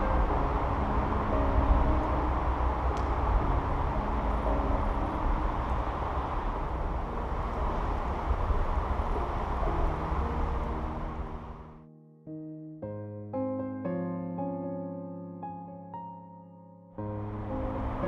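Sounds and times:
outdoor background rumble: 0.0 - 11.8, 17.0 - 18.0.

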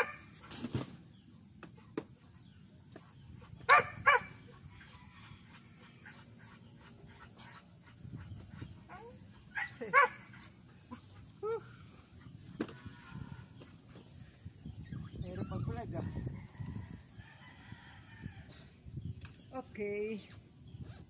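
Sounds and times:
dog barking: 3.7 - 4.3, 9.6 - 10.2.

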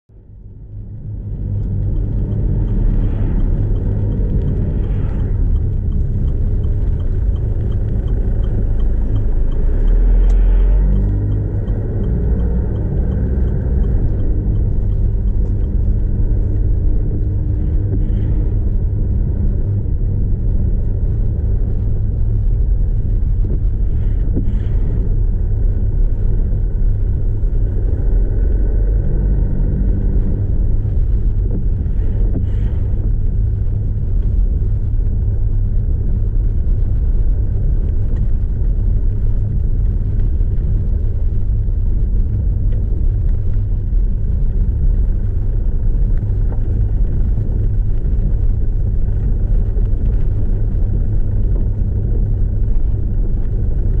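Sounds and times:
car cabin engine rumble: 0.1 - 54.0
faint regular ticking: 1.0 - 18.2.

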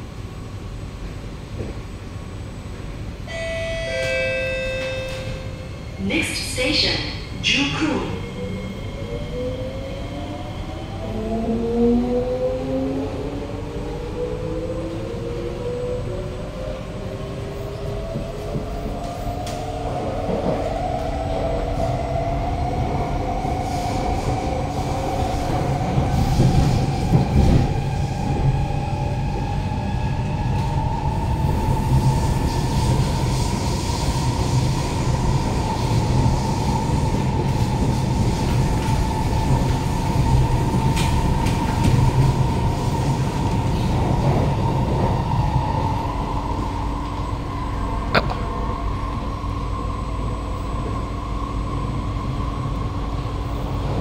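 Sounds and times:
wheels rumbling on rails: 16.0 - 54.0.

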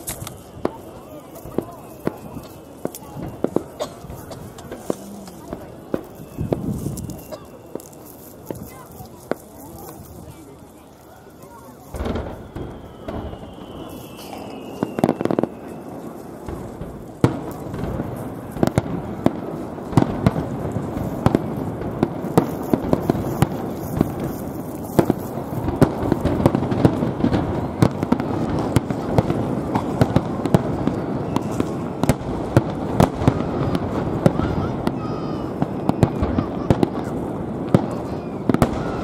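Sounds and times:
firework crackling: 0.0 - 39.0
firework shells bursting: 11.9 - 39.0.

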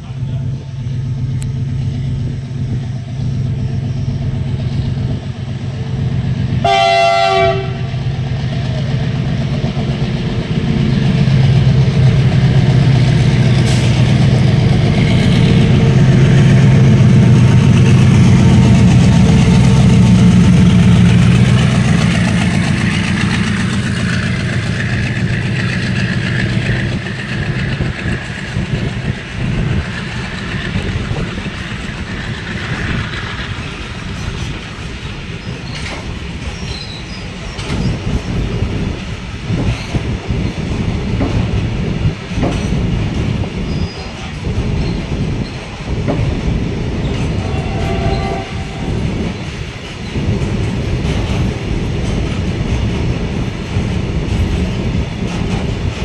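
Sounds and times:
diesel locomotive engine: 0.0 - 56.0
train wheels clattering on rails: 1.1 - 56.0
locomotive horn blast: 6.6 - 8.0, 47.4 - 49.0.

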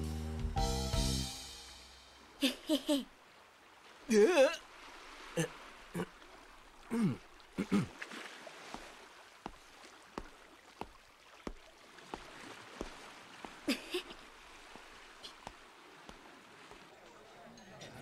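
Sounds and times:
short wordless voice sounds: 4.1 - 4.6
footsteps walking: 8.6 - 16.9.

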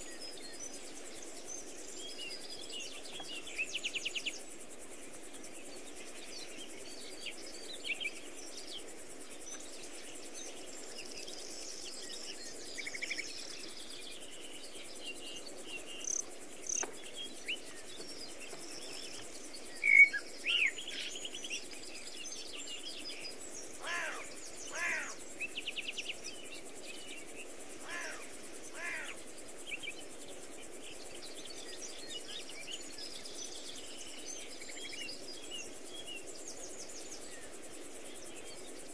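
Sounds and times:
low background noise: 0.0 - 38.9
birds chirping and trilling: 9.8 - 30.0.

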